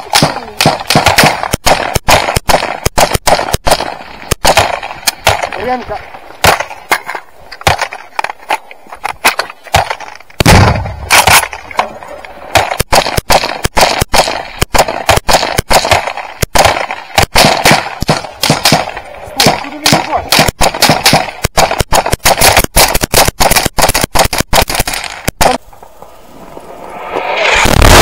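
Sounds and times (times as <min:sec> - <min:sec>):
rifle gunfire: 0:00.0 - 0:05.8, 0:06.4 - 0:06.8, 0:07.6 - 0:08.0, 0:09.2 - 0:11.8, 0:12.5 - 0:25.6, 0:27.5 - 0:28.0
heavy blast: 0:10.4 - 0:11.6, 0:26.7 - 0:28.0.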